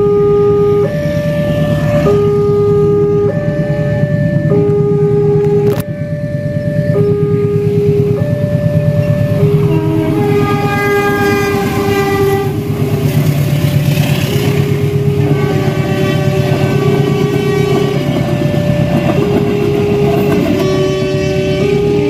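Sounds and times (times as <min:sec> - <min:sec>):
level crossing warning tones: 0:00.0 - 0:22.0
train engine and rail rumble: 0:00.0 - 0:22.0
train wheel clatter: 0:09.1 - 0:22.0.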